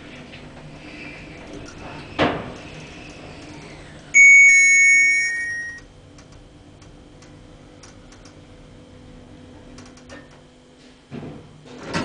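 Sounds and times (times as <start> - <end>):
two-note chime: 4.2 - 5.8.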